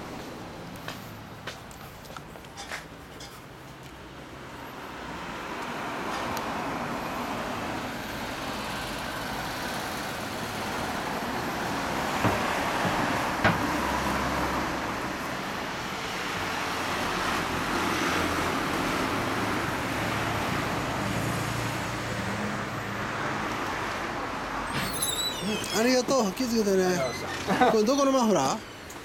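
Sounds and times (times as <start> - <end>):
cars passing: 0.0 - 29.0.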